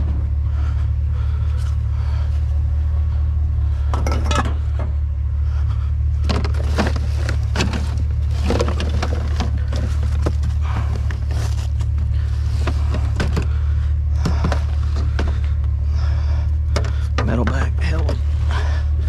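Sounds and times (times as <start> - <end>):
truck engine idling: 0.0 - 19.0
scrap metal and plastic clattering: 6.2 - 13.6.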